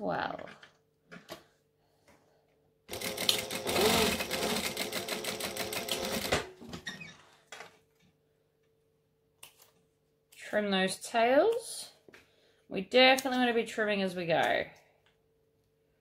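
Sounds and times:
sewing machine stitching: 0:02.9 - 0:06.6.

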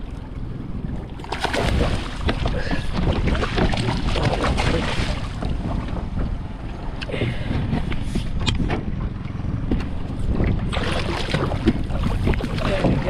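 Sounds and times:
wind rumbling on microphone: 0:00.0 - 0:13.0
fish splashing in water: 0:01.1 - 0:05.5, 0:10.7 - 0:13.0.

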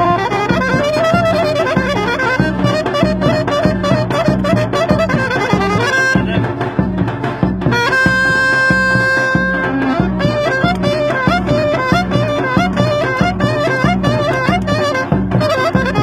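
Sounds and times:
bass drum beat: 0:00.0 - 0:16.0
saxophone fast melody: 0:00.0 - 0:16.0.

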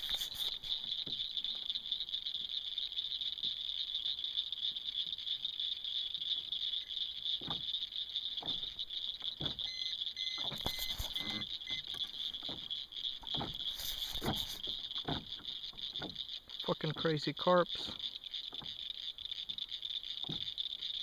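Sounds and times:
insects chirping chorus: 0:00.0 - 0:21.0
short electronic beeps: 0:09.6 - 0:11.9
dull knocks: 0:12.4 - 0:16.2.

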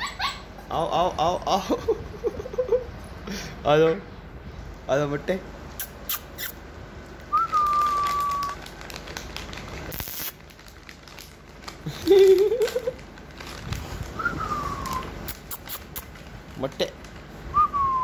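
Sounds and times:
puppy whining: 0:00.0 - 0:00.9, 0:14.2 - 0:16.1
plastic bag crinkling: 0:07.1 - 0:17.4.

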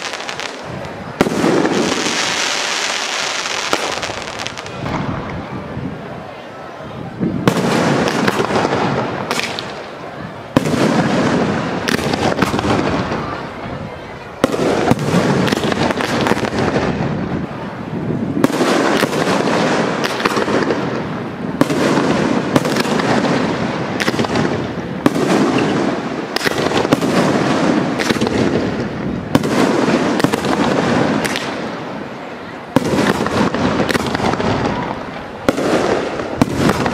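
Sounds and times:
firework crackles: 0:00.0 - 0:06.2, 0:07.1 - 0:36.9.

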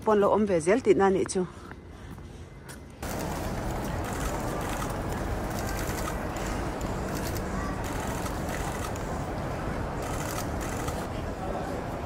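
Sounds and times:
crowd murmur: 0:02.9 - 0:12.0.

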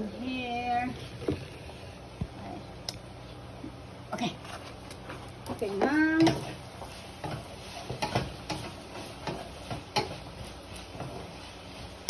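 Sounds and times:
wooden spatula scraping a pan: 0:04.4 - 0:12.0.

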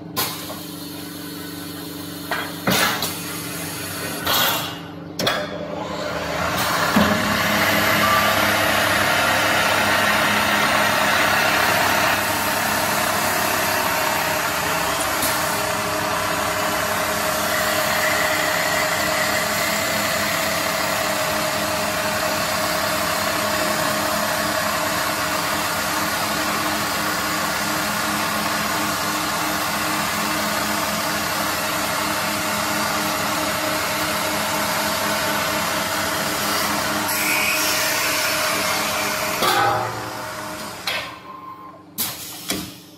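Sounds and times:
lathe motor and spindle whine: 0:05.7 - 0:39.5.

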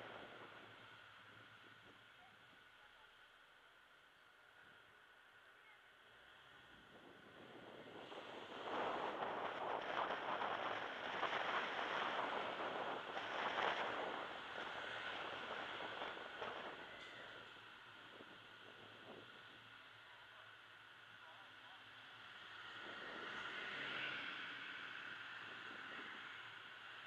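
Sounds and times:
car road noise: 0:00.0 - 0:03.4, 0:06.2 - 0:27.0
wind rushing: 0:06.9 - 0:17.0.

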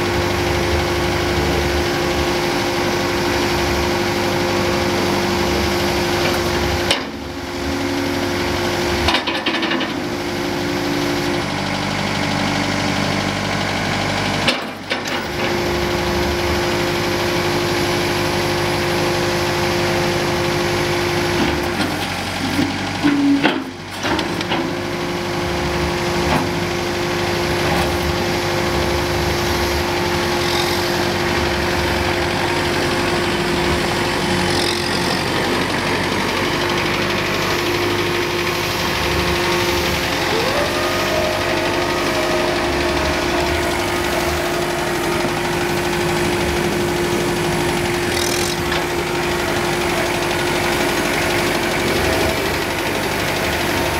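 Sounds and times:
diesel tractor engine running: 0:00.0 - 0:53.9
steady tone: 0:30.6 - 0:53.9.

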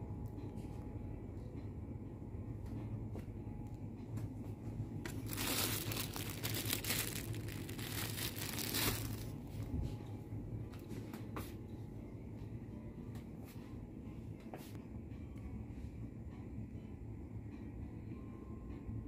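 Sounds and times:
steady low hum: 0:00.0 - 0:19.0
plastic bag crinkling: 0:05.1 - 0:09.4.

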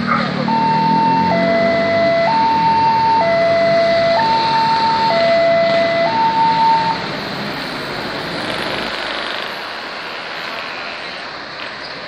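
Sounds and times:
road traffic: 0:00.0 - 0:12.0
level crossing two-tone alarm: 0:00.5 - 0:07.0.

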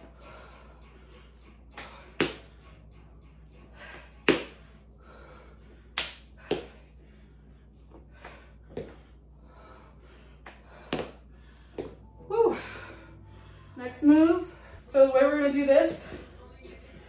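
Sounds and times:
person breathing: 0:00.0 - 0:02.8, 0:03.6 - 0:13.8.

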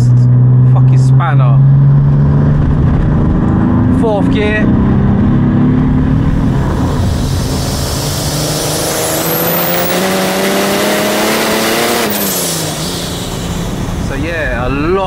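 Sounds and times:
diesel engine accelerating: 0:00.0 - 0:15.0
turbo whistle: 0:07.1 - 0:10.4.

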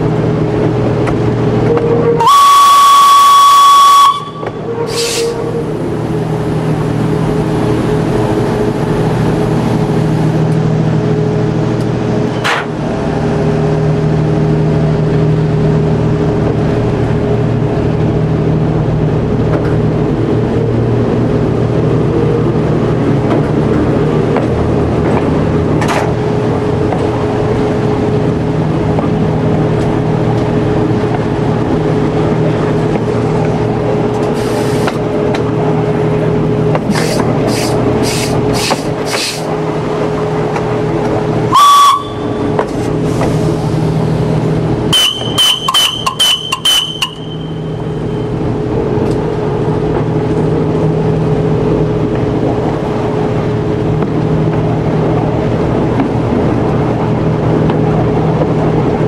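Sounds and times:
train engine running: 0:00.0 - 0:59.0
train whistle blast: 0:01.6 - 0:05.8, 0:41.5 - 0:42.6, 0:44.9 - 0:47.9
wheels clicking on rails: 0:36.6 - 0:50.9.

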